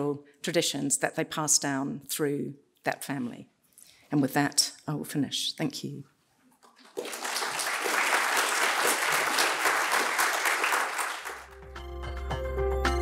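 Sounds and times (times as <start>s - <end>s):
audience applauding: 6.8s - 11.7s.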